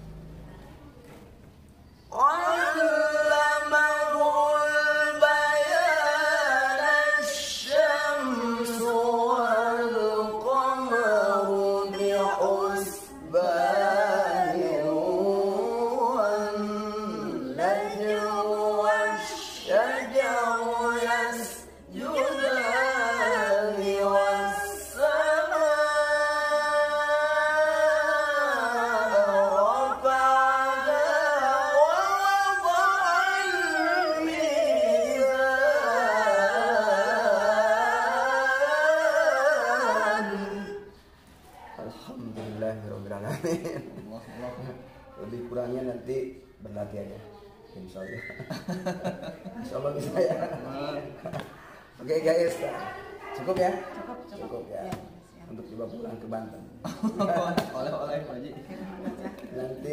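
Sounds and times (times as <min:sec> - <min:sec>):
unaccompanied chanted recitation: 0:00.0 - 0:59.9.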